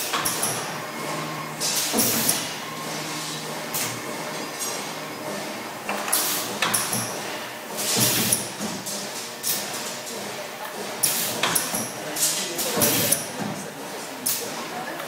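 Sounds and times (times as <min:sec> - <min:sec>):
machine humming: 0:00.0 - 0:08.6.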